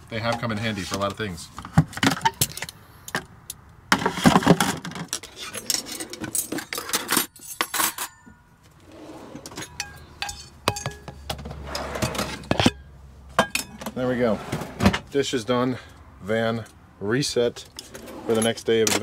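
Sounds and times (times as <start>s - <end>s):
utensils clinking in drawer: 4.2s - 8.4s, 9.1s - 12.8s, 17.8s - 19.0s.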